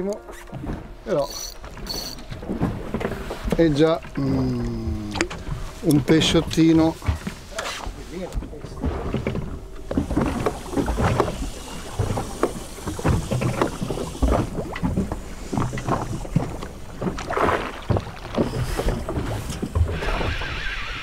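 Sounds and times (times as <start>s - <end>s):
knocks and thumps on boat: 0.0s - 20.7s
low background rumble: 0.0s - 21.0s.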